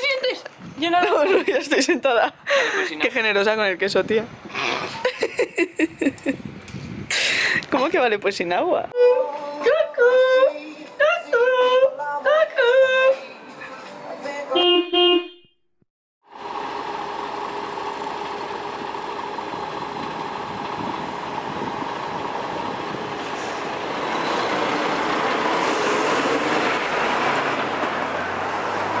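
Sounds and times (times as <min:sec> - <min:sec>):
road traffic engines: 0:00.0 - 0:08.9, 0:16.3 - 0:29.0.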